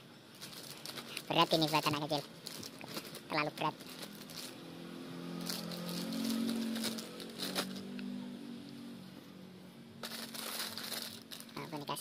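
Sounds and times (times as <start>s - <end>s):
plastic packaging crinkling: 0.3s - 4.6s, 5.4s - 8.0s, 10.0s - 12.0s.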